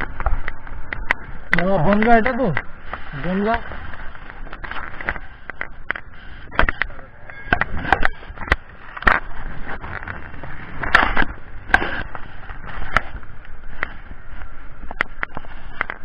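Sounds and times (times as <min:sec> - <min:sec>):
rushing wind hiss: 0:00.0 - 0:07.0
sharp knocks and crackles: 0:00.0 - 0:16.0.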